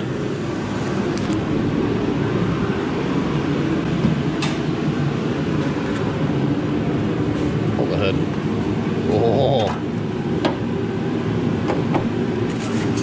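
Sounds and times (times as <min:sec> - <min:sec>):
fan humming: 0:00.0 - 0:13.0.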